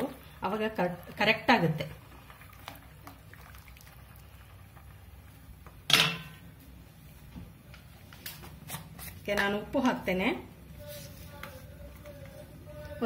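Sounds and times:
spatula clanking on steel pot: 5.9s - 6.4s.

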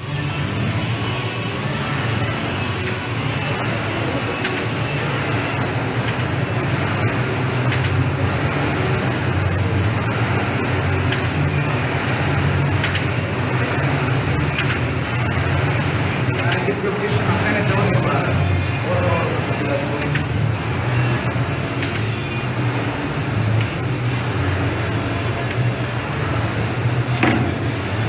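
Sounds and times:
rowing machine fan whirring: 0.0s - 28.0s.

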